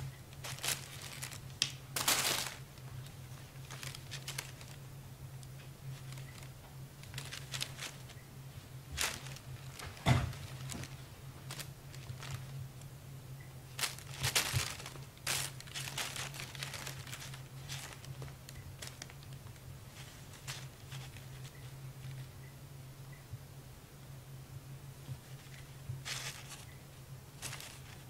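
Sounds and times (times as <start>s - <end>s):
plastic bag crinkling: 0.3s - 12.9s, 13.7s - 22.4s, 25.2s - 26.8s, 27.4s - 28.0s
thump: 10.0s - 10.4s.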